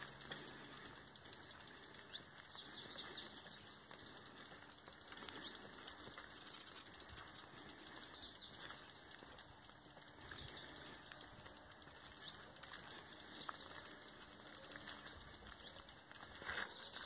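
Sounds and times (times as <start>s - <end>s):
faint bird chirps: 1.5s - 4.7s.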